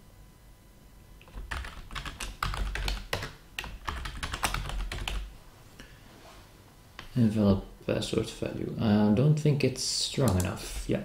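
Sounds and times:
typing on keyboard: 1.2s - 5.3s.

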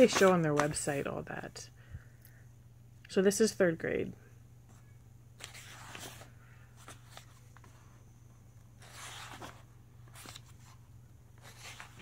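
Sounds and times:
book pages rustling: 0.0s - 1.2s, 4.7s - 7.9s, 8.7s - 10.8s, 11.4s - 12.0s.

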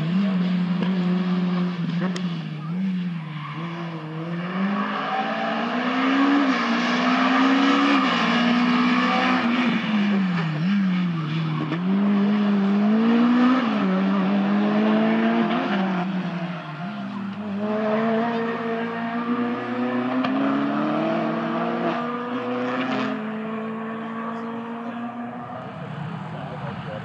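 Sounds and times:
rally car engine revving: 0.0s - 27.0s.

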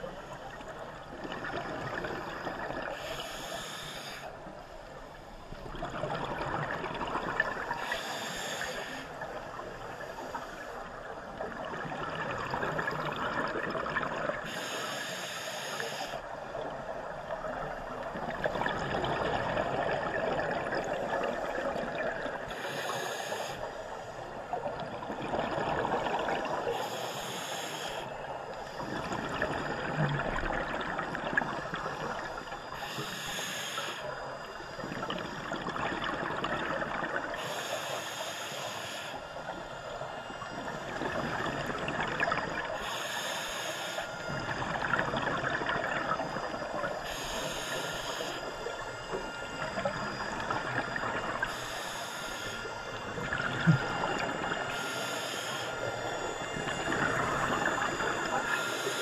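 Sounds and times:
exhaled bubbles gurgling: 0.0s - 14.8s, 16.0s - 38.0s, 38.9s - 59.0s
regulator breath hiss: 2.9s - 4.4s, 7.8s - 10.9s, 14.4s - 16.3s, 22.5s - 24.2s, 26.7s - 28.9s, 32.7s - 34.2s, 37.4s - 39.4s, 42.7s - 44.3s, 47.0s - 48.8s, 51.4s - 52.8s, 53.8s - 56.6s, 58.2s - 59.0s.

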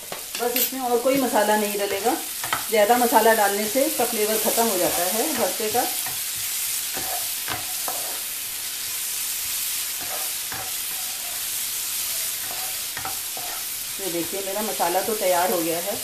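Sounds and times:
masala sizzling in oil: 0.0s - 16.0s
spatula scraping pan: 0.3s - 8.4s, 9.8s - 15.0s.

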